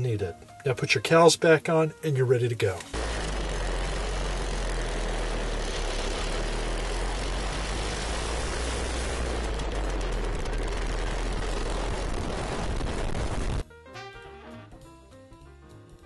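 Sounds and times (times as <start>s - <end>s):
scooter engine running: 3.0s - 13.4s
wind rush on microphone: 3.6s - 13.6s.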